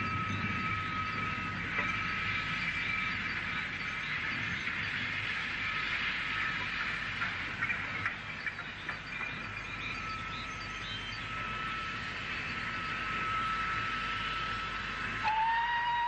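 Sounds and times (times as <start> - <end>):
faint whistle-like tone: 9.0 - 16.0
steam train hissing: 13.7 - 16.0.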